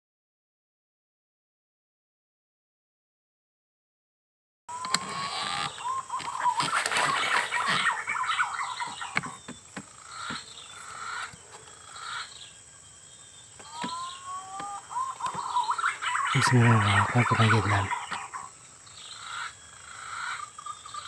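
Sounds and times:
bird chirps: 4.7s - 21.0s
birds whistling: 4.7s - 21.0s.

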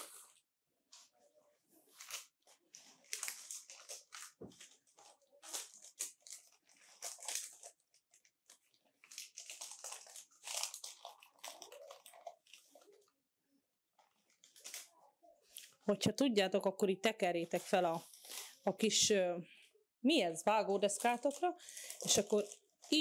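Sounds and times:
baking paper crinkling: 1.0s - 13.1s, 13.9s - 15.8s, 17.1s - 18.8s, 20.5s - 23.0s.

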